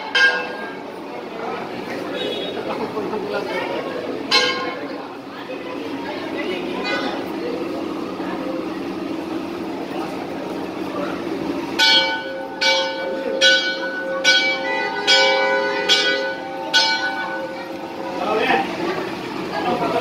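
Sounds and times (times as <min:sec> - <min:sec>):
temple bell ringing: 0:00.0 - 0:02.5, 0:03.4 - 0:05.2, 0:11.6 - 0:18.8
crowd murmuring: 0:00.0 - 0:20.0.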